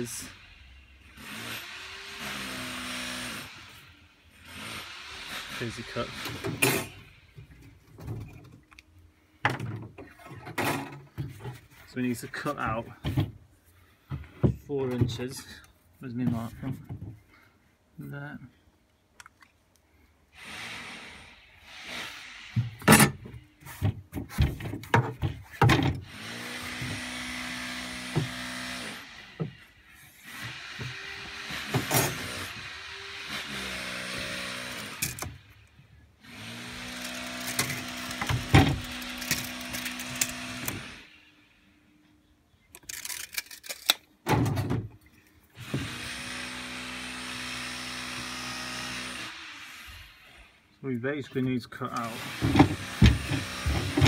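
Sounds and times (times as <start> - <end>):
clicks and knocks of tools handled: 37.0 - 40.4, 42.7 - 44.1.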